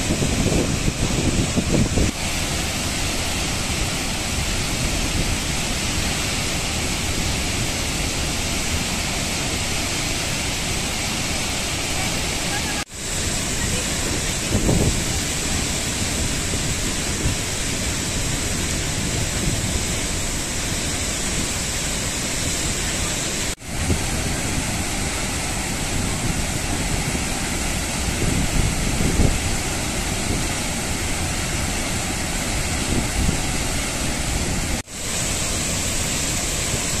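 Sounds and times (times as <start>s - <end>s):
waterfall crashing onto rock: 0.0s - 37.0s.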